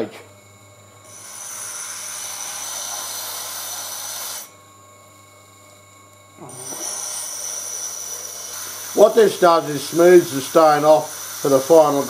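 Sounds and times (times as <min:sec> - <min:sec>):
grindstone grinding hiss: 0:01.0 - 0:04.6, 0:06.4 - 0:12.0.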